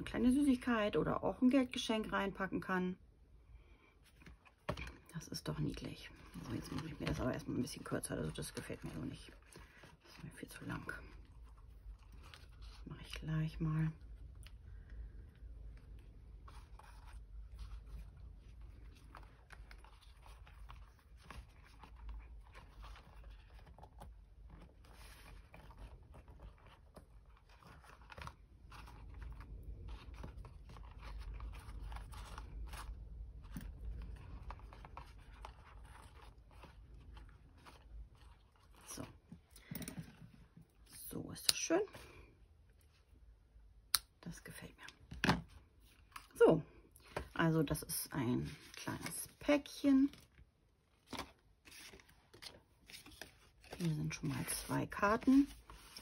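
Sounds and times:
paper and twine rustling: 48.4 - 56.0.

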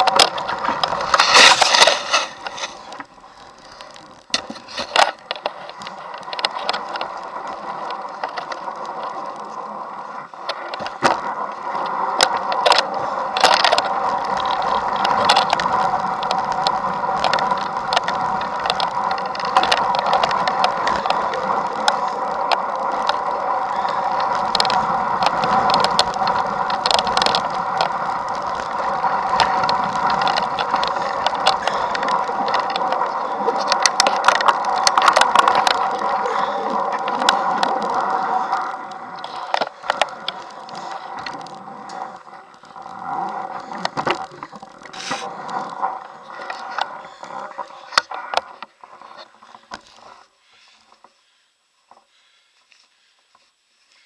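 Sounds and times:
bicycle drivetrain whirr: 0.0 - 54.0
bike clicks and knocks: 12.2 - 36.0.

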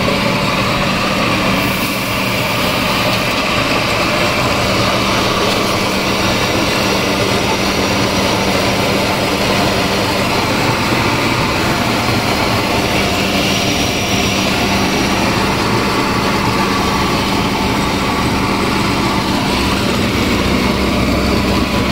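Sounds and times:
flour mill machine drone: 0.0 - 21.9.

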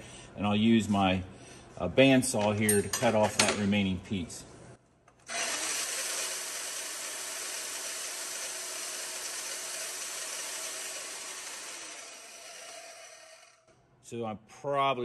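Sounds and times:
band saw cutting metal: 5.3 - 13.7.

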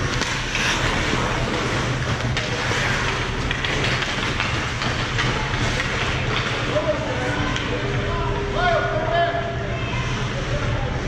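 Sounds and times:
hockey sticks and puck clicking: 0.0 - 7.8
skates scraping on ice: 0.0 - 7.8
steady low hum: 0.0 - 11.0.

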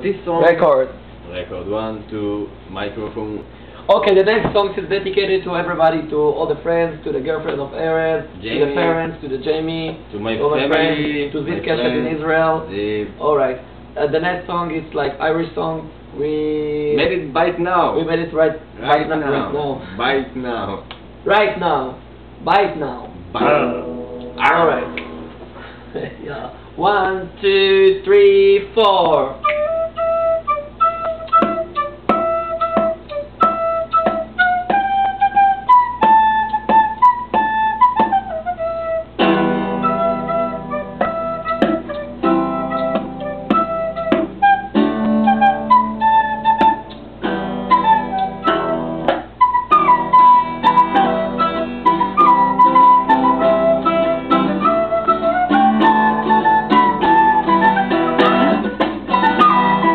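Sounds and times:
guitar: 0.0 - 59.9
flute: 29.4 - 47.0, 47.6 - 59.9.

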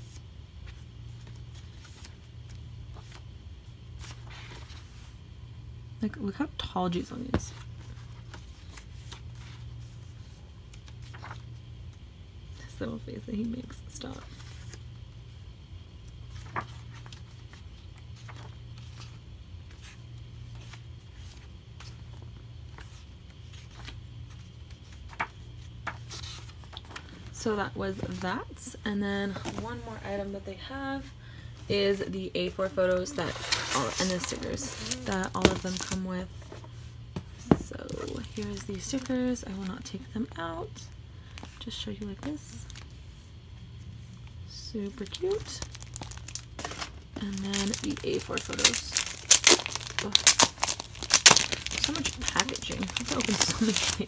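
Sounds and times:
steady low hum: 0.0 - 54.0
paper pages turning: 7.5 - 11.6, 16.3 - 27.1, 45.7 - 54.0
paper rustling: 7.5 - 11.6, 16.2 - 27.2, 32.9 - 39.1, 45.3 - 54.0
notebook pages turning: 10.7 - 11.5, 16.3 - 27.0.

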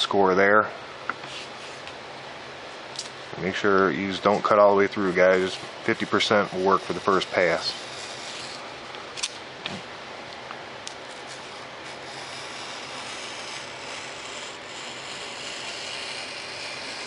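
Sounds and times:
knife scoring foam board: 5.4 - 8.6, 11.1 - 17.0.

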